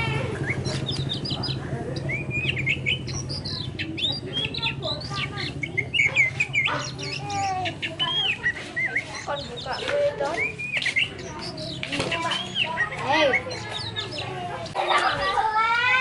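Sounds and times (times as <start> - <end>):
bird singing chirps and whistles: 0.3 - 15.1.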